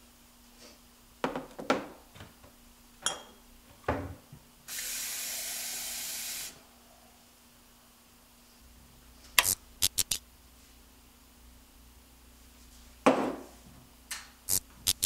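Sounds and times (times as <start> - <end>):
dishes clinking: 3.0 - 3.4
faucet running: 4.7 - 6.5.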